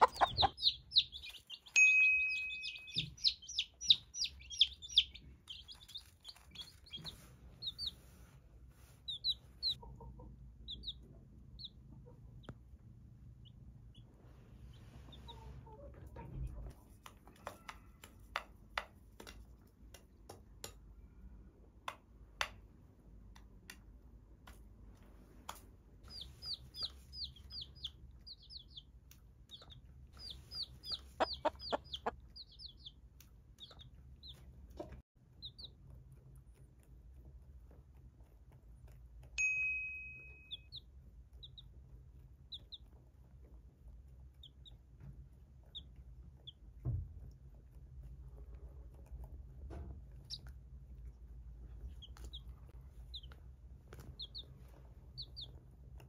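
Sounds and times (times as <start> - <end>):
chickens pecking grain off plate: 0.0 - 1.8, 2.8 - 8.1, 15.3 - 21.4, 23.2 - 39.4
chicks peeping: 0.0 - 18.4, 26.0 - 36.6, 40.4 - 47.7, 49.9 - 56.0
short ringing ding: 1.8 - 3.0, 39.4 - 40.6.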